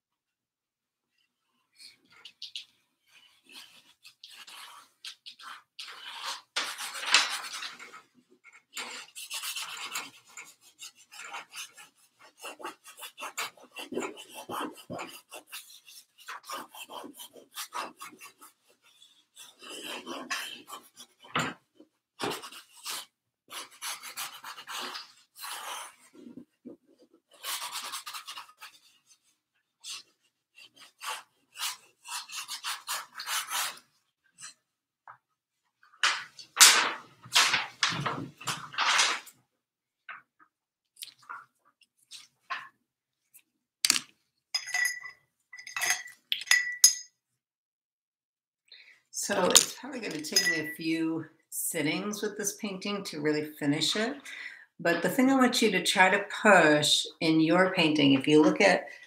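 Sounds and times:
brush scrubbing paint on canvas: 1.2 - 34.6.

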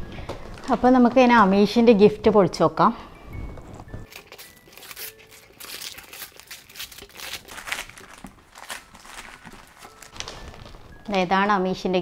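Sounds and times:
packaging rustling and crinkling: 3.2 - 11.5.

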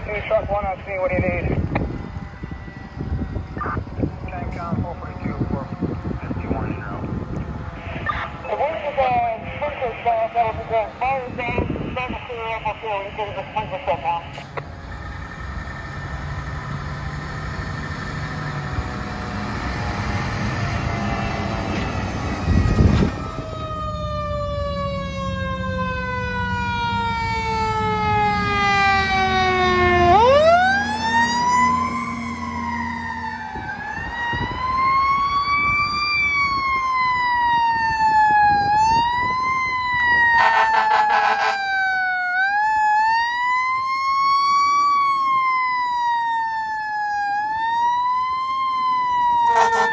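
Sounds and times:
fire truck sirens wailing: 0.0 - 49.9
truck engine rumble: 0.0 - 49.9
loud low horn blast: 40.3 - 41.7, 49.5 - 49.9
short air horn blast: 49.5 - 49.9.

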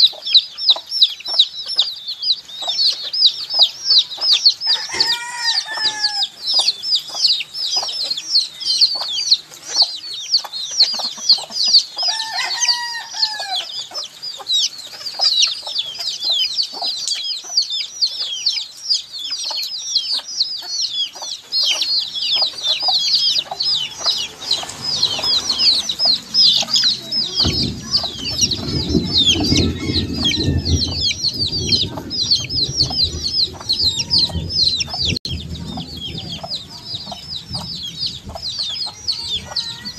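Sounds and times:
baby chicks peeping: 0.0 - 39.9
low rumbling noise: 21.9 - 39.9.

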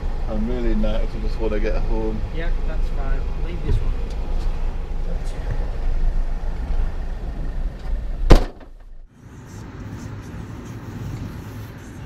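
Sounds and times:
low rumble inside vehicle: 0.0 - 12.0
car door slamming: 8.2 - 9.0.

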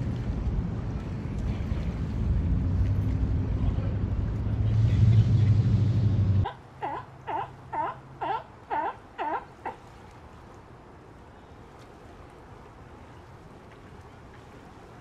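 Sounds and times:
sea lion barking: 6.4 - 9.8.

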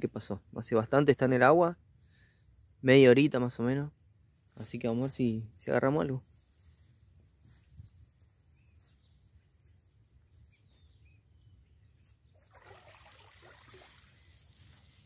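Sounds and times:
faint bird chirps: 1.9 - 2.8, 7.6 - 12.4
water splashing and pouring: 12.4 - 15.0.

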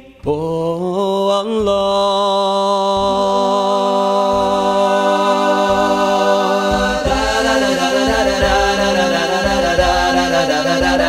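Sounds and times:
man singing a cappella: 0.0 - 11.0
voices humming: 2.8 - 11.0.

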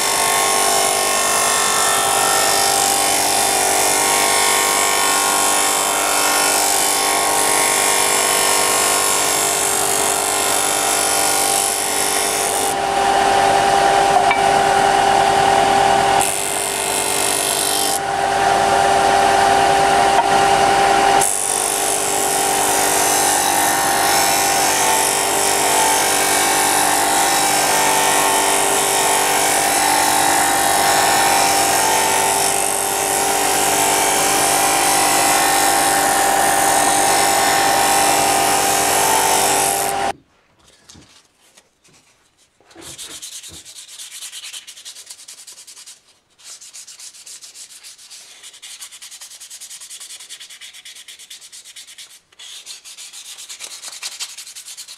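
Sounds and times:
power sander on wood: 0.0 - 40.2
hand sanding wood: 41.9 - 54.9.

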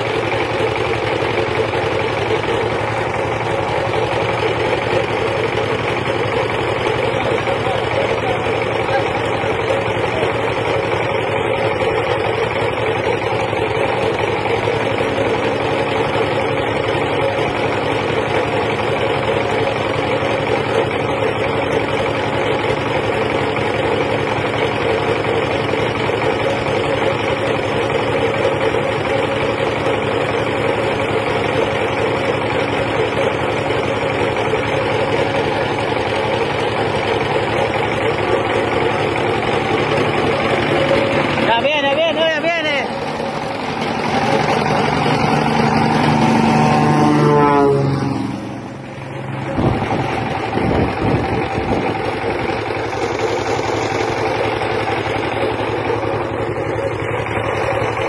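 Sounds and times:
propeller engine droning: 0.0 - 58.0.

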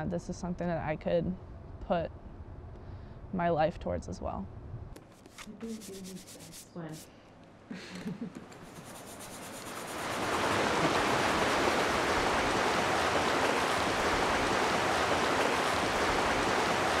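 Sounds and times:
rushing water: 8.7 - 17.0.

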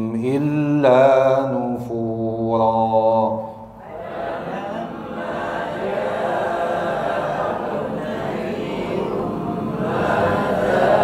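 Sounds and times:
voices chanting in unison: 3.8 - 11.0.

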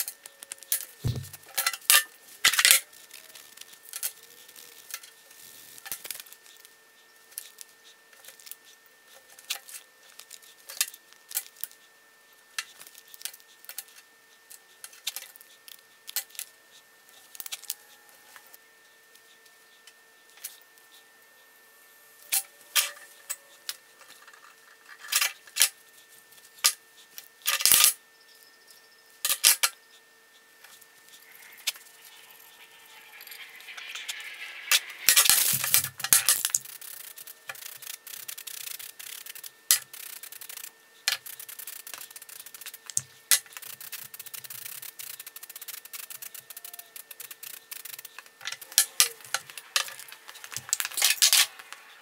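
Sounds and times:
spray paint hissing: 1.0 - 1.4, 30.7 - 51.1
spray paint can rattling: 1.0 - 1.5, 31.2 - 51.7.

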